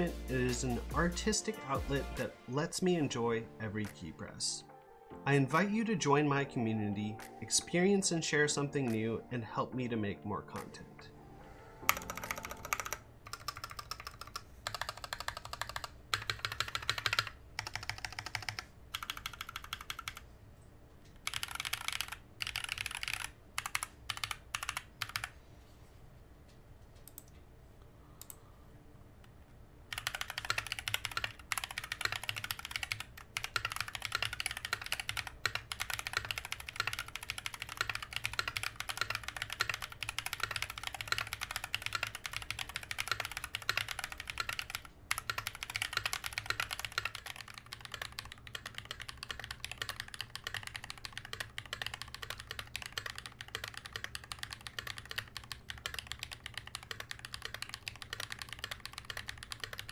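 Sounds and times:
mechanical keyboard typing: 11.8 - 20.2, 21.2 - 25.4, 29.9 - 59.9.

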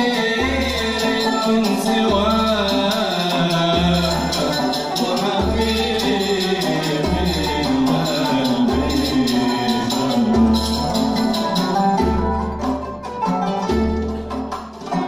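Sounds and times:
ensemble of melodic instruments: 0.0 - 15.0
frame drum jingles: 0.0 - 15.0.

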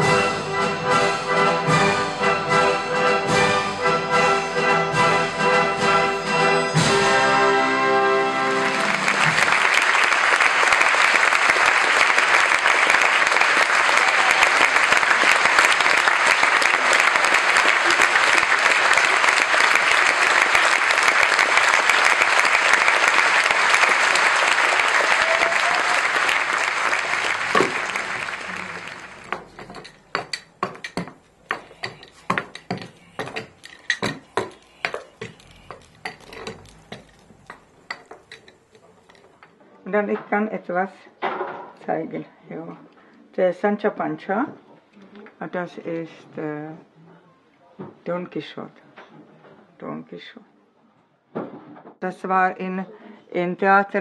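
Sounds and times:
orchestra playing chords: 0.0 - 9.2, 26.4 - 30.0
audience applause: 8.4 - 39.2.

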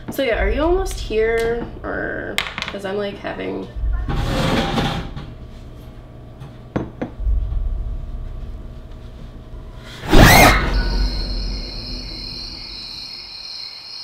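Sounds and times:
noisy clatter: 0.2 - 13.0
low rumble: 0.3 - 2.4, 3.6 - 13.4
loud sudden hit: 9.6 - 13.4.

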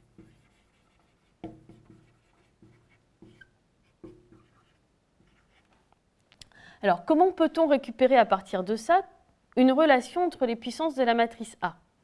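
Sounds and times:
marker pen writing on whiteboard: 0.0 - 5.9.

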